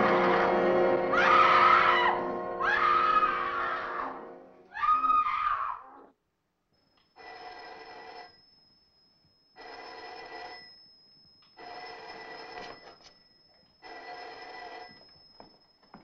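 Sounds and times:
telephone bell ringing: 7.1s - 16.0s.

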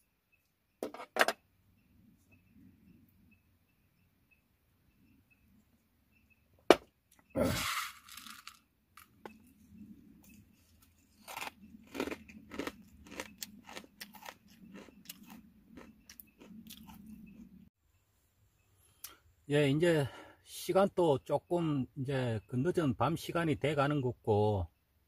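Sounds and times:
crunching and chewing snack: 10.2s - 17.7s.

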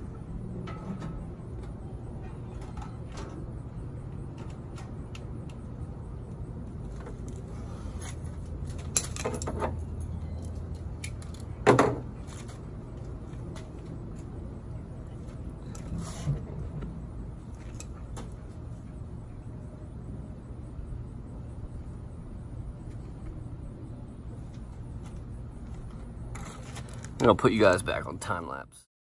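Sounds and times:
steady low hum: 0.0s - 28.9s
clatter of parts: 8.0s - 12.6s.

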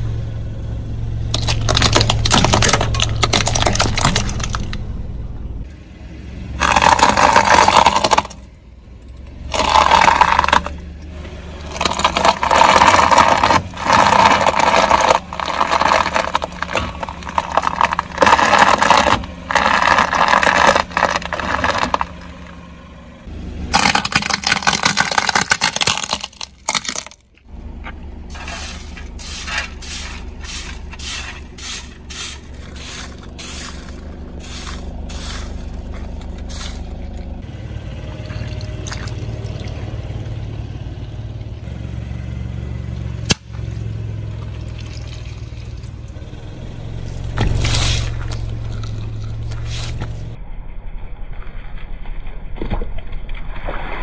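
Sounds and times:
car engine hum: 0.0s - 51.4s
tyre crushing objects: 1.3s - 4.7s, 6.6s - 8.4s, 9.5s - 10.8s, 11.6s - 22.4s, 23.7s - 27.3s, 28.3s - 37.0s, 47.0s - 50.4s.

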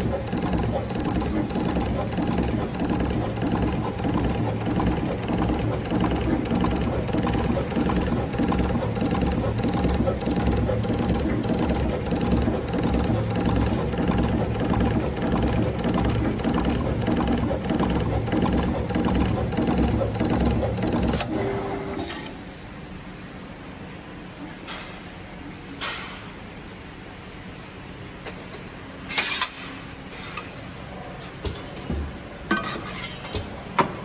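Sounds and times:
machine gantry whirring and ticking: 0.0s - 21.5s
short machine hum: 0.0s - 21.9s.

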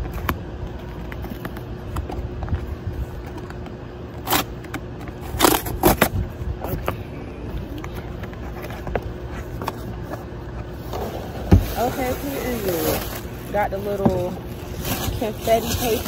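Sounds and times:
crackles and scrapes: 0.0s - 7.0s, 7.7s - 16.0s
steady low rumble: 0.0s - 16.0s
cardboard box tearing: 4.2s - 4.6s, 5.2s - 6.2s, 10.8s - 16.0s.

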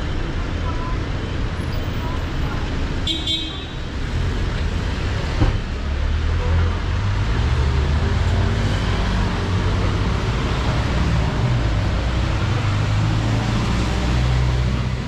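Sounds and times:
vehicle engines running: 3.8s - 15.0s.

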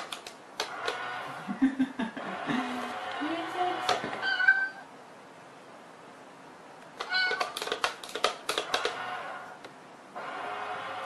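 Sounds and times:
steady whirring hum: 0.0s - 11.0s
cat meowing: 4.2s - 4.9s, 7.0s - 7.6s
sharp clattering taps: 7.0s - 9.0s.

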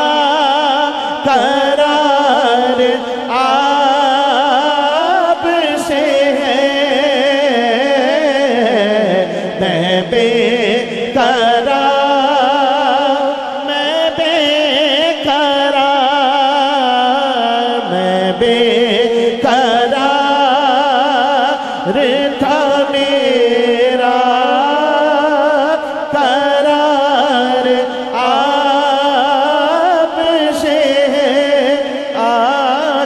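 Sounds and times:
singer breathing: 1.0s - 1.2s, 3.0s - 3.3s, 9.2s - 9.6s, 10.8s - 11.1s, 21.5s - 21.9s, 25.8s - 26.1s, 27.8s - 28.2s.

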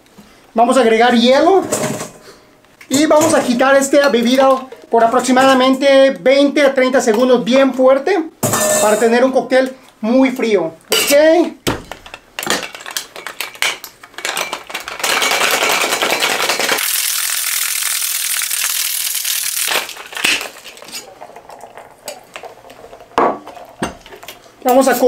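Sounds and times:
ice rattling in cocktail shaker: 12.6s - 25.0s.

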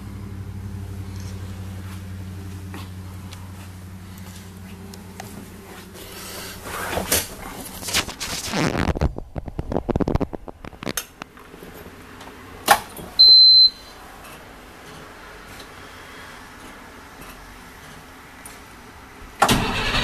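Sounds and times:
electronic warning beep: 13.2s - 14.0s.

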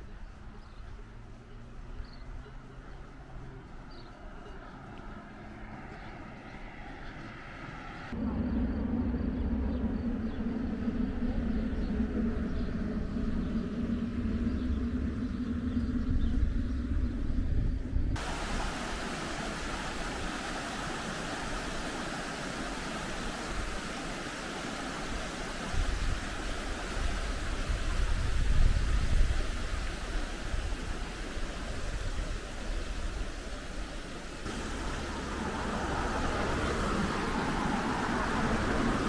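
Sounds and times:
loud low rumble with hum: 8.2s - 18.8s
stream rushing over rocks: 18.2s - 39.0s.

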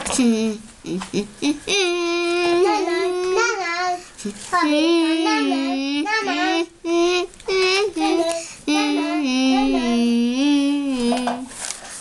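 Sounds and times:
boy singing: 0.1s - 11.5s.

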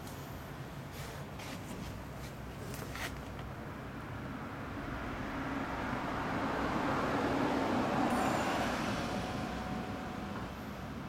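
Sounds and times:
low traffic rumble: 0.0s - 11.0s
vehicle passing by: 4.6s - 11.0s.

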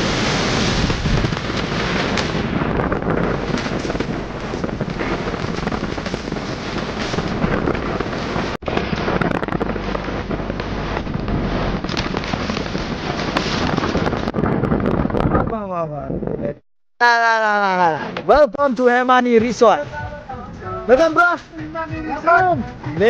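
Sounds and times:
road and engine noise: 0.0s - 14.4s
wind buffeting microphone: 0.0s - 16.6s.

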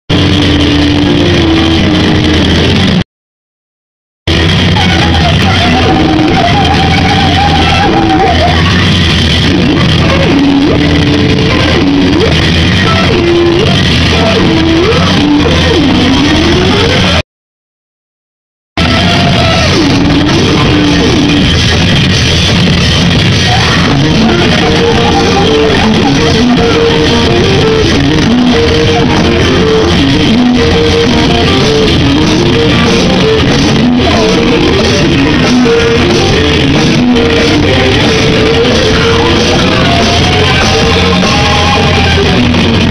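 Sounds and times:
drum kit: 0.1s - 3.0s, 4.3s - 17.2s, 18.8s - 42.9s
electric guitar riff: 0.1s - 3.0s, 4.3s - 17.2s, 18.8s - 42.9s
person singing into microphone: 4.8s - 17.2s, 23.4s - 42.6s.

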